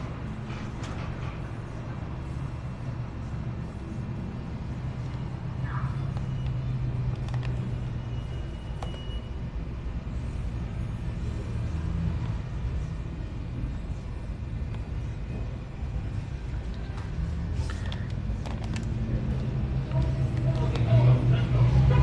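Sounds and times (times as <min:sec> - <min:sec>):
passing cars rumbling: 0:17.2 - 0:22.0.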